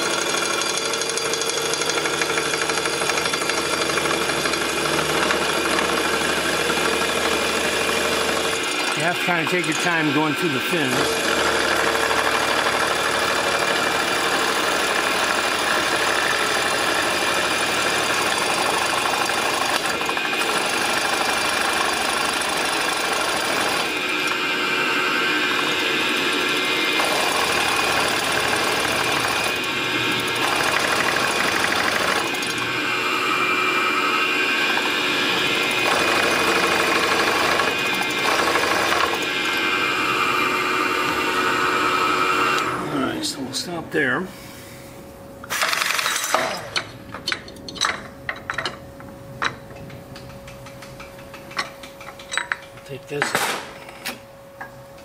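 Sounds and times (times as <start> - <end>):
machine cutter cutting aluminium: 0.0 - 42.8.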